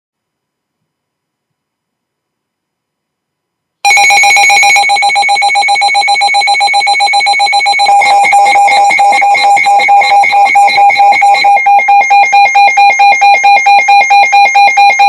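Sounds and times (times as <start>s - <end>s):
pulsing electronic alert beeping: 3.9s - 15.0s.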